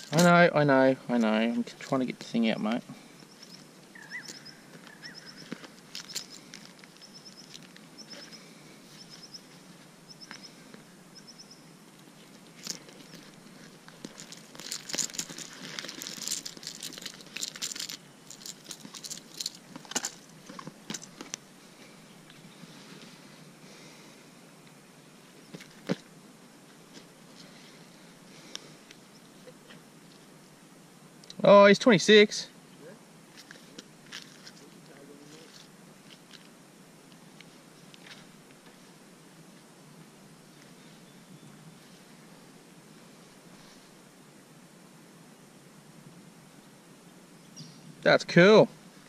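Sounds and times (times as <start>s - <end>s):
faint high chirp: 3.2s - 11.8s, 47.4s - 48.0s
plastic crinkling: 12.6s - 21.4s.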